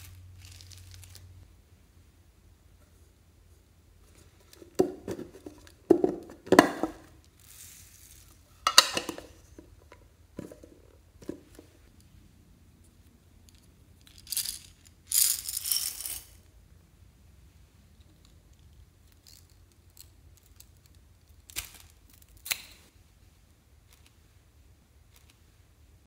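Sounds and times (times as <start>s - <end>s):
plastic beads rattling in cup: 0.3s - 1.3s, 7.3s - 8.4s, 14.0s - 16.4s.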